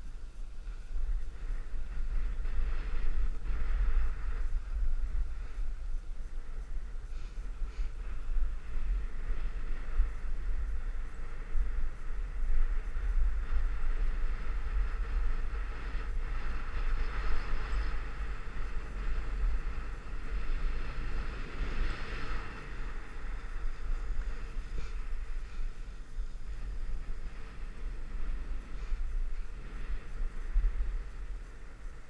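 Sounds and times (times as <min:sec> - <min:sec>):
wind buffeting microphone: 0:00.0 - 0:32.0
skis sliding on snow: 0:17.0 - 0:32.0.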